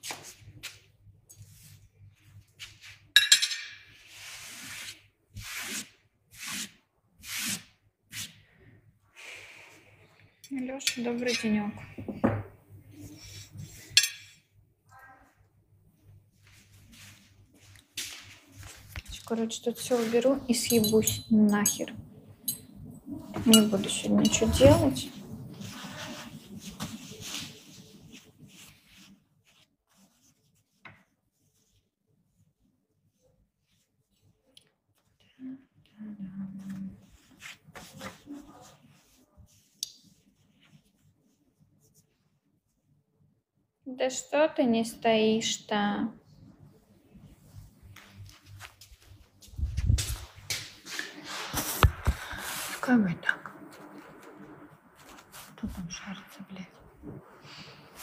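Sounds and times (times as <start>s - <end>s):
close rustling and rubbing: 16.4s - 20.7s, 23.6s - 34.4s, 53.8s - 56.2s.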